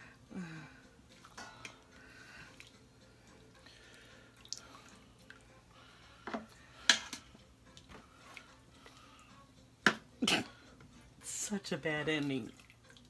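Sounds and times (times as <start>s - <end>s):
liquid dripping and splashing: 3.6s - 5.6s, 12.2s - 13.0s
sharp knocks on steel pot: 9.8s - 10.0s.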